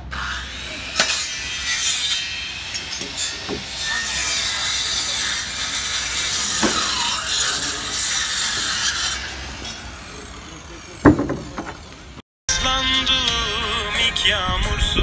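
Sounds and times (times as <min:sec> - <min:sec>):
timber rasping and scraping: 0:00.1 - 0:12.2
sharp wooden knocks: 0:11.0 - 0:11.8.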